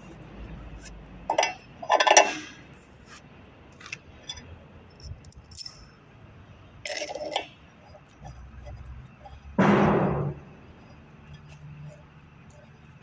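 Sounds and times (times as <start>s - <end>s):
small metal parts clinking: 1.3s - 2.6s, 3.8s - 6.0s, 6.8s - 9.6s.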